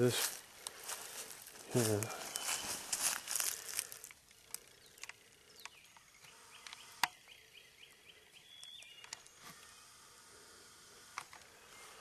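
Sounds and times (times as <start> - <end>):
twigs and leaves snapping: 0.2 - 6.0
bird chirping: 2.0 - 3.0, 4.4 - 10.0.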